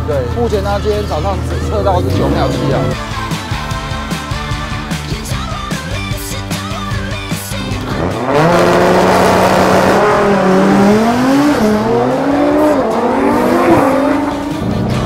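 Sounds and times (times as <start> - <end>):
drag racing car engine accelerating: 1.2 - 3.3, 7.7 - 15.0.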